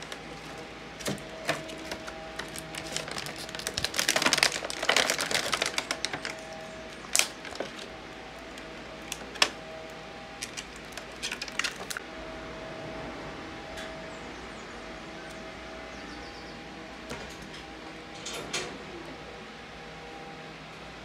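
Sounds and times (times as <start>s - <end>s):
plastic packaging crinkling: 0.0s - 9.6s, 10.4s - 12.0s.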